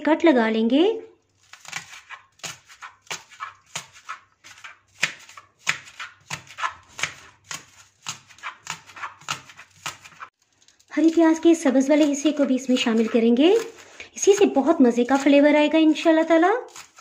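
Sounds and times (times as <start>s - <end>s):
knife slicing on cutting board: 1.4s - 10.3s, 12.0s - 15.4s, 16.2s - 17.0s.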